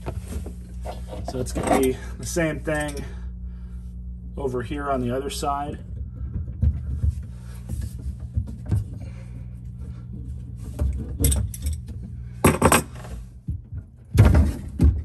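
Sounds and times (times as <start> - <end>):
steady low hum: 0.0 - 15.0
metal clinks and rattles: 11.0 - 13.0.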